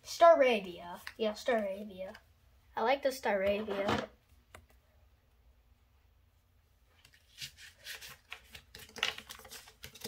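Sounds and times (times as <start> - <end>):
cards being shuffled: 7.0 - 10.0.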